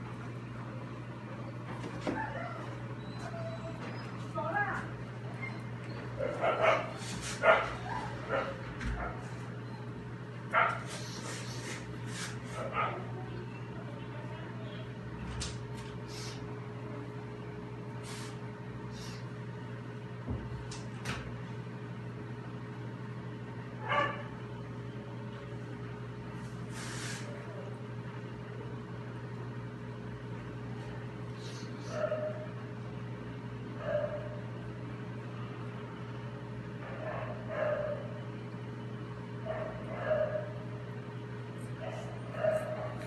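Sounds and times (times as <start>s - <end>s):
background hum: 0.0s - 43.0s
dog barking: 6.2s - 9.2s, 10.5s - 10.9s, 12.6s - 13.1s, 23.8s - 24.3s, 31.9s - 32.5s, 33.8s - 34.4s, 36.8s - 38.2s, 39.4s - 40.6s, 41.8s - 43.0s.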